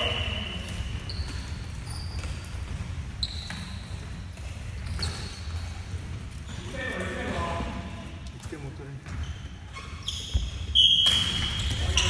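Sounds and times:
shoes squeaking on wooden floor: 0.5s - 6.7s, 9.0s - 12.0s.

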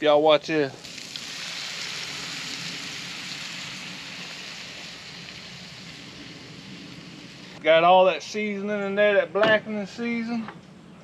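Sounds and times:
shrimp sizzling in a frying pan: 0.8s - 7.5s
cream pouring: 0.8s - 7.6s.

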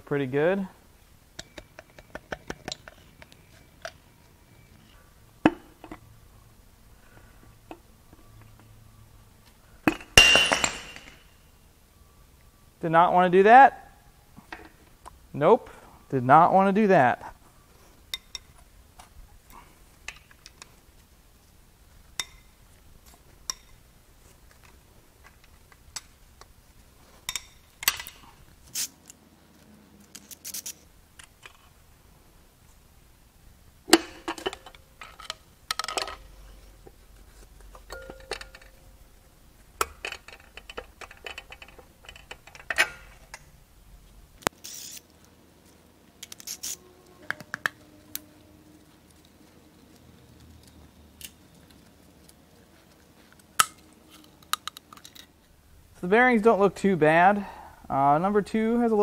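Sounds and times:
metal engine parts clinking: 9.9s - 11.3s, 37.7s - 38.9s
sharp metal clanks: 9.9s - 11.4s.

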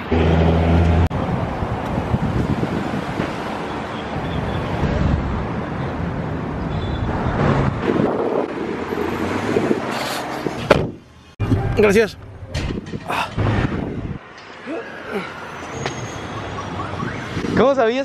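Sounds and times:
passing street traffic: 0.0s - 18.0s
wind buffeting microphone: 1.1s - 3.5s, 7.1s - 11.8s, 12.5s - 14.2s.

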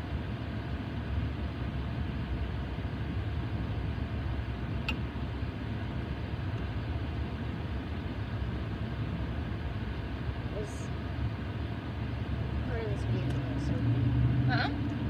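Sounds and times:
car cabin road rumble: 0.0s - 15.0s
small click: 4.8s - 5.0s.

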